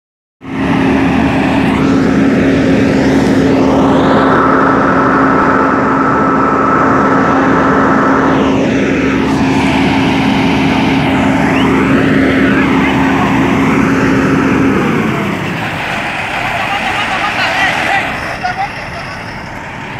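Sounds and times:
diesel truck engine idling: 9.0s - 19.9s.

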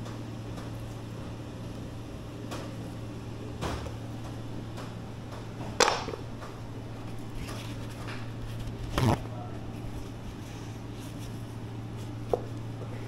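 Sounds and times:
steady low hum: 0.0s - 13.0s
knocks and clicks of kitchen tools: 5.7s - 6.5s.

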